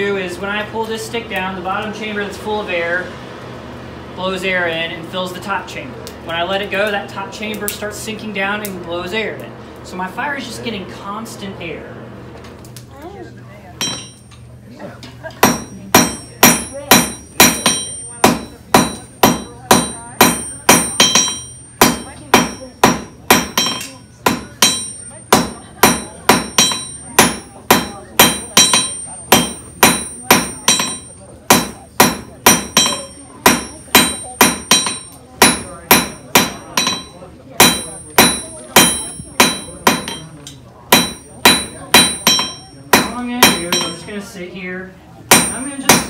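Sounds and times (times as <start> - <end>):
hammer striking iron on anvil: 13.8 - 14.4, 15.4 - 44.2, 45.3 - 46.0.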